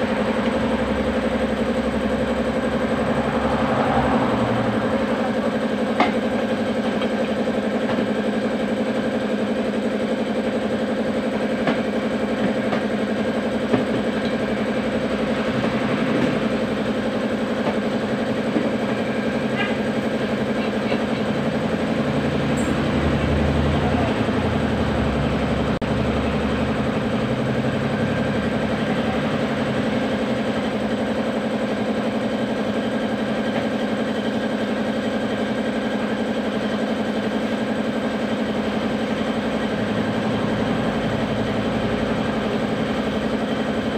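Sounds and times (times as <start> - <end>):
machine hum: 0.0 - 33.6.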